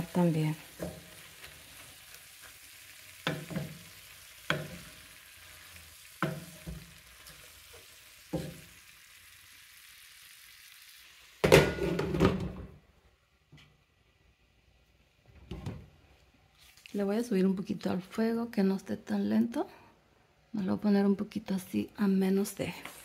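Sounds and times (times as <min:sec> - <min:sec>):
greens sizzling in a skillet: 0:00.0 - 0:11.6, 0:16.6 - 0:17.7, 0:22.0 - 0:23.0
wooden spoon knocking on pan: 0:03.2 - 0:03.8, 0:04.4 - 0:04.9, 0:06.2 - 0:07.0.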